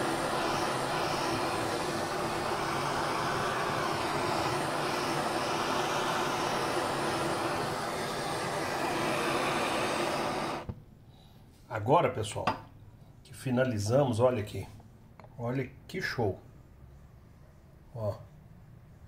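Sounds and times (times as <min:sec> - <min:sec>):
blowtorch flame hissing: 0:00.0 - 0:10.8.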